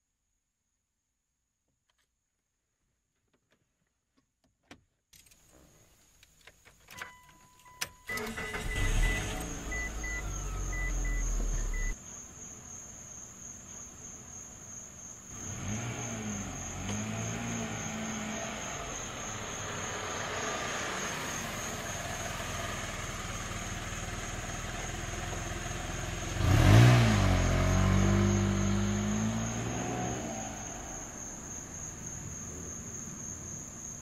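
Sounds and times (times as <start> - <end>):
engine starting and running: 7.8 - 12.0, 15.4 - 32.0.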